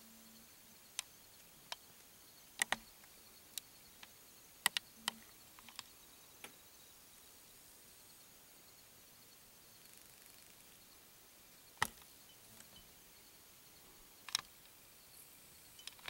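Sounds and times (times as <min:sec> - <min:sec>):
faint steady background noise: 0:00.0 - 0:16.0
sharp clicks and ticks: 0:02.6 - 0:05.9.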